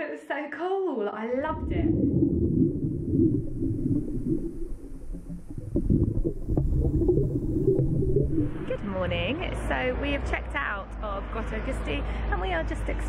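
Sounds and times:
muffled underwater rumble: 1.4s - 10.0s.

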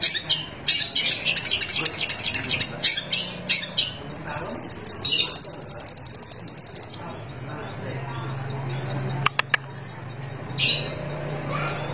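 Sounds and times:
bird singing high trill: 0.0s - 11.9s
sharp clicks: 9.2s - 9.8s.

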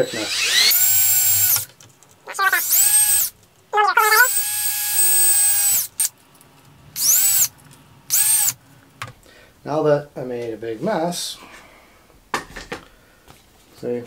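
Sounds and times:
cordless drill whine: 0.0s - 1.7s, 2.5s - 3.3s, 4.0s - 6.1s, 7.0s - 7.5s, 8.1s - 8.6s.

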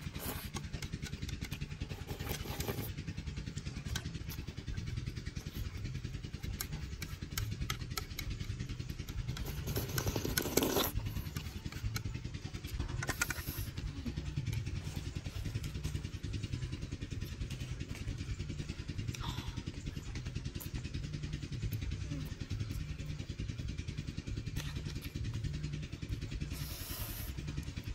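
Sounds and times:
low pulsing rumble: 0.0s - 27.9s
person slurping noodles: 9.5s - 11.0s.

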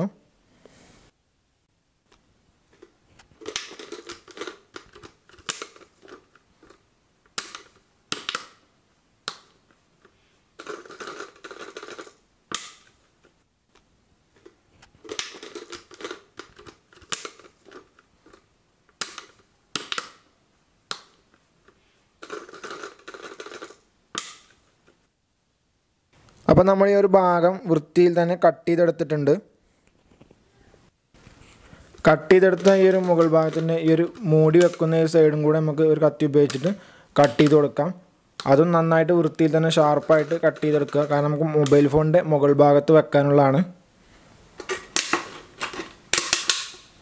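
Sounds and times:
plastic crinkling and crackling: 31.2s - 35.2s.

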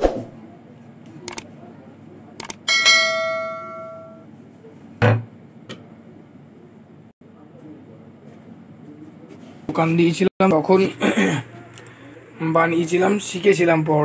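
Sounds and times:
metal utensil ringing: 2.7s - 4.2s.

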